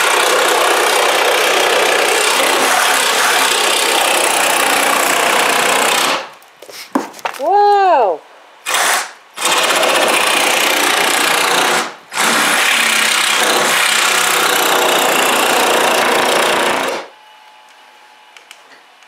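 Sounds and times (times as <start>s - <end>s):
reciprocating saw cutting wood: 0.0s - 6.2s, 8.6s - 17.1s.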